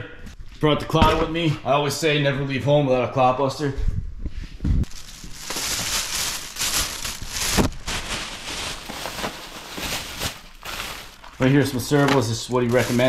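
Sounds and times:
plastic bag rustling: 4.8s - 13.0s.

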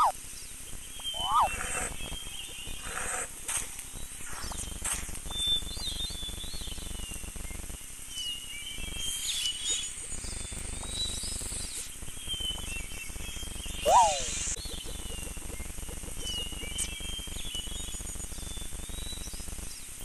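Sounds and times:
birds chirping: 0.0s - 19.4s.

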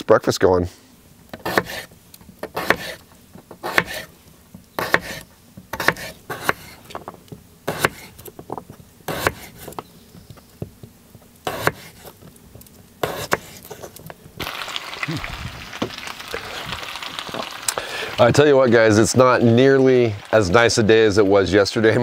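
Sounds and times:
knife cutting potato on board: 1.3s - 4.1s, 4.8s - 9.8s, 10.6s - 14.0s.

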